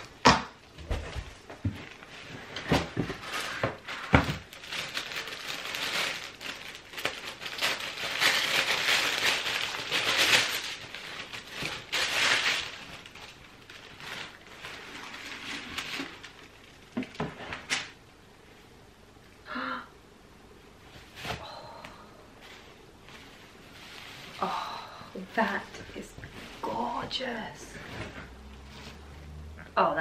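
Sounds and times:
tissue paper rustling: 1.1 - 17.8, 22.4 - 29.1.

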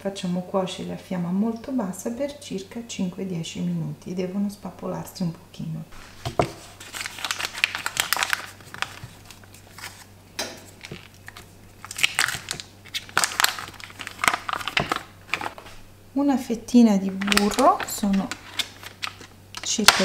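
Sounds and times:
paper wrapper crinkling: 6.0 - 15.8, 17.0 - 20.0.

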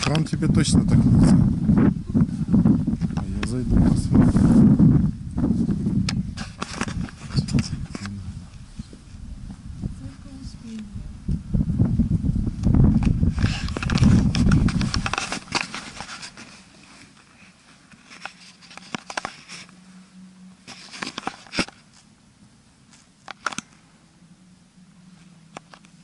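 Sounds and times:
microphone rumble: 0.0 - 16.0
camera rubbing against clothing: 0.8 - 9.1, 12.8 - 20.0, 20.6 - 22.1.

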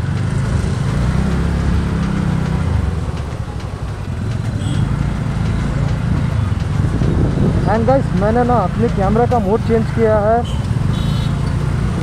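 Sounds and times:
motorcycle engine running: 0.0 - 12.0
street noise: 0.0 - 12.0
wind rush on microphone: 6.3 - 8.5.

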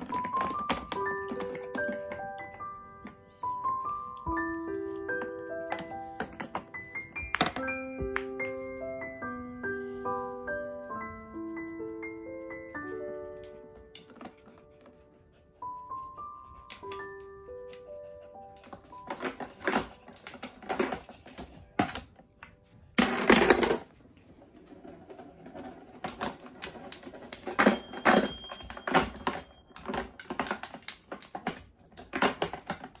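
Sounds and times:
plastic toy clicking and clattering: 0.0 - 2.6, 18.6 - 22.2, 23.0 - 23.9, 24.6 - 33.0.

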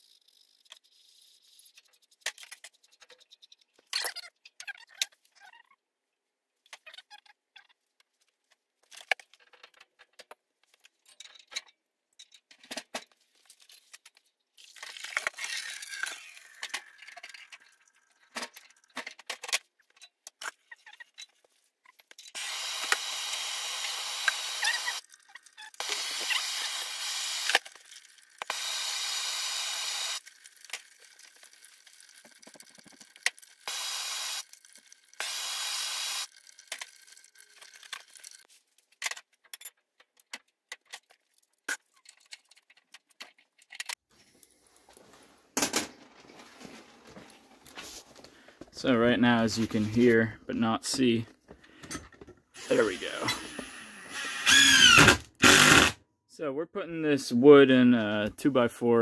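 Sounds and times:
clicks and knocks of tools and pipe: 8.5 - 22.4, 36.6 - 44.0, 51.3 - 52.5.

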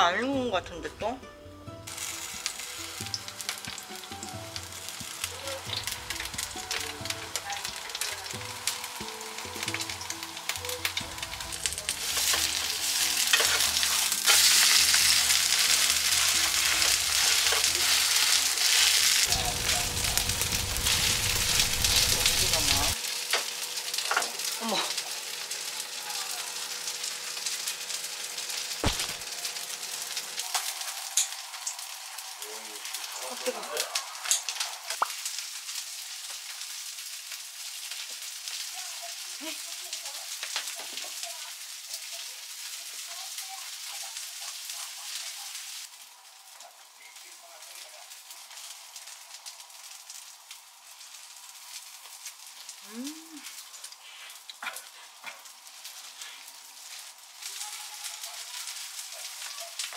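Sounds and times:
batter sizzling in oil: 0.0 - 59.9
spatula scraping pan: 12.0 - 15.0.

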